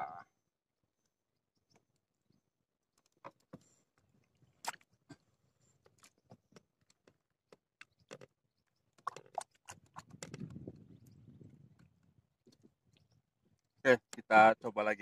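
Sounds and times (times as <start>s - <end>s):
clicks and taps of fishing tackle: 5.8s - 8.4s, 9.0s - 10.6s.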